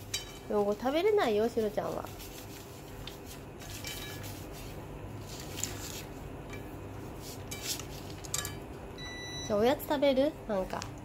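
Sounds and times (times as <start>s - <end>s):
steady low hum: 0.0s - 11.0s
utensils and dishes clinking: 7.4s - 8.7s.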